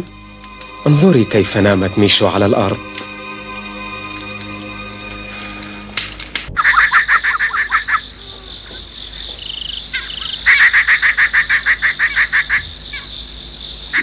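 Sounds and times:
high insect trill: 0:00.0 - 0:14.0
rapid pulsed frog calls: 0:06.5 - 0:14.0.

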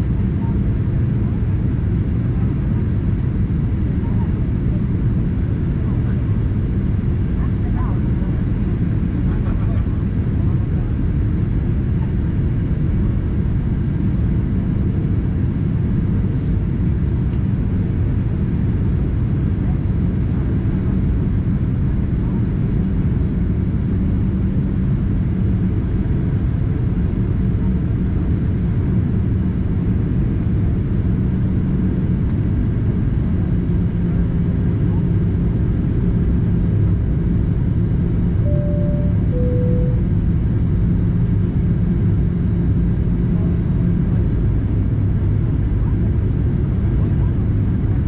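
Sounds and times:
airplane cabin rumble: 0:00.0 - 0:48.0
two-note cabin chime: 0:38.5 - 0:40.3.

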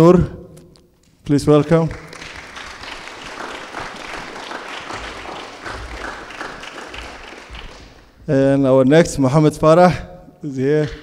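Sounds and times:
audience applauding: 0:01.6 - 0:08.2.

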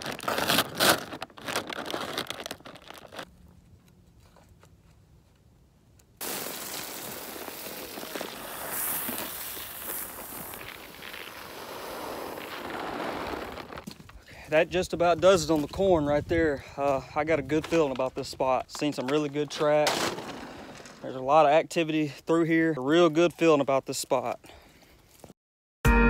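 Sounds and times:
sack crinkling and clicking: 0:00.0 - 0:06.1
corn kernels pouring onto ground: 0:06.2 - 0:13.8.

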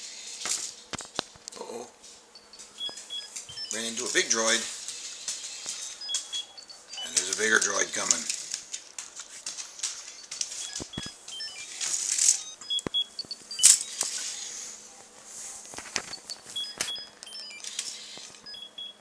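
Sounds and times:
short electronic beeps: 0:02.4 - 0:04.1, 0:05.6 - 0:07.6, 0:10.2 - 0:14.6, 0:16.0 - 0:19.0
toy robot clicks and knocks: 0:16.0 - 0:18.5.

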